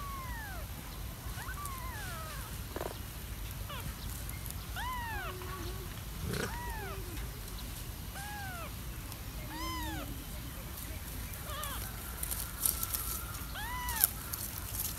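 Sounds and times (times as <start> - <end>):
kitten meowing: 0.0 - 0.6, 1.4 - 2.5, 4.8 - 5.6, 6.3 - 7.2, 8.2 - 8.7, 9.5 - 10.1, 11.4 - 11.9, 13.6 - 14.2.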